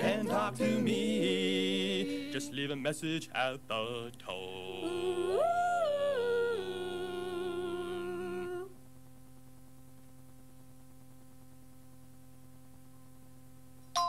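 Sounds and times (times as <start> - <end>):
vocal group singing jingle: 0.0 - 8.7
cassette playback hum: 0.0 - 13.9.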